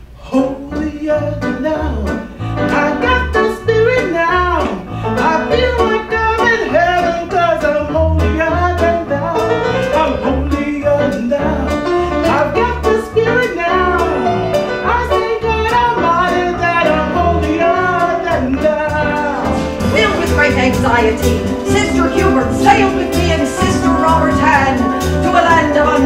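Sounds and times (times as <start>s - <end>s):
live band playing: 2.1s - 26.0s
woman singing: 14.9s - 26.0s.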